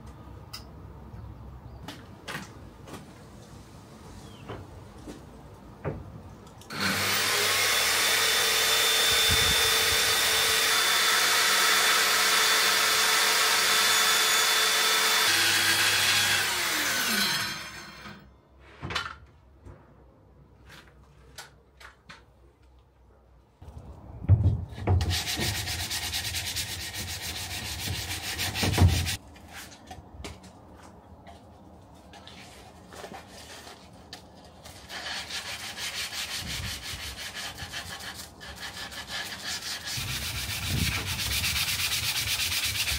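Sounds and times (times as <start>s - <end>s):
power saw cutting plywood: 6.7s - 18.2s.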